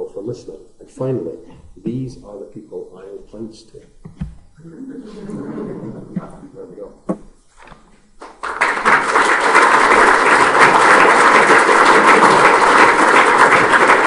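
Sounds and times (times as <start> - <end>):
audience applauding: 8.2 - 14.0.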